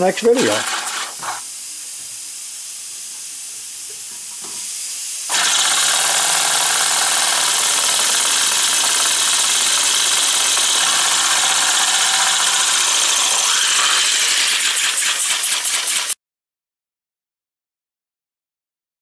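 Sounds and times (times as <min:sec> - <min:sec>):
air engine hissing: 0:00.0 - 0:01.5, 0:10.3 - 0:16.2.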